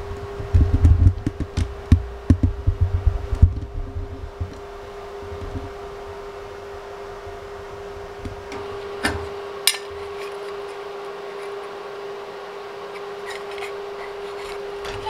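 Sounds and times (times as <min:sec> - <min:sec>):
steady mechanical hum: 0:00.0 - 0:15.0
low thumps and knocks: 0:00.4 - 0:04.6.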